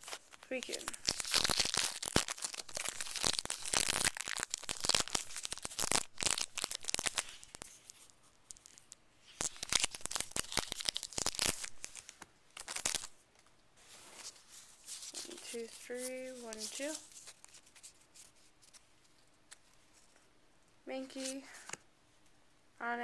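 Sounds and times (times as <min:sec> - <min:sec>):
foil wrapper tearing and crinkling: 0:00.0 - 0:13.2, 0:14.2 - 0:18.3.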